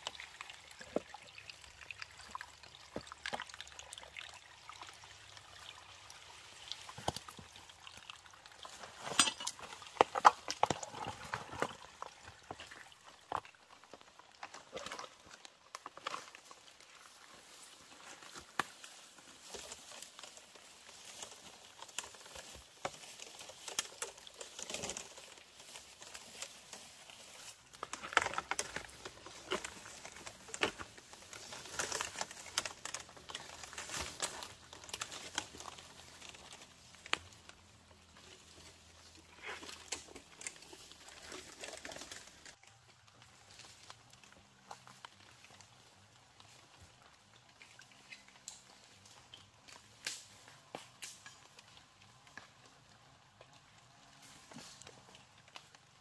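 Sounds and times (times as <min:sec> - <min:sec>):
rustling and crinkling: 0:04.8 - 0:56.0.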